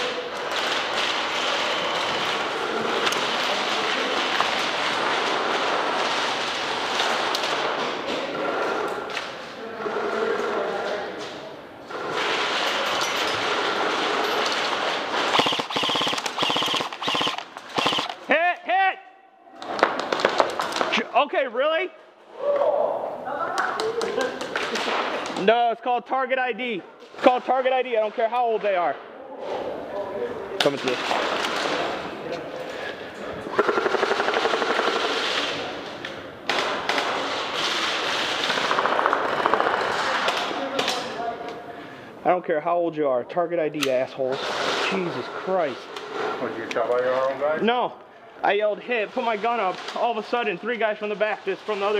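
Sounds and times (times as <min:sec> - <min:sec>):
airsoft guns rattling on full auto: 0:12.2 - 0:18.3, 0:33.6 - 0:35.5
airsoft rifle firing sharp bursts: 0:15.2 - 0:18.3, 0:33.6 - 0:35.4.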